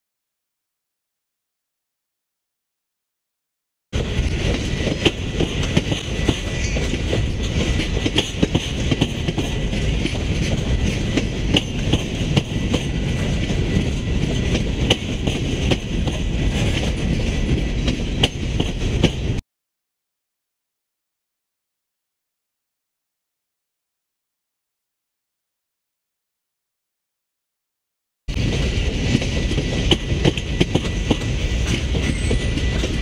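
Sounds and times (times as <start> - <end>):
train clicks and clanks: 4.0 - 19.4, 28.3 - 33.0
train wheels rumbling on rails: 4.0 - 19.4, 28.3 - 33.0.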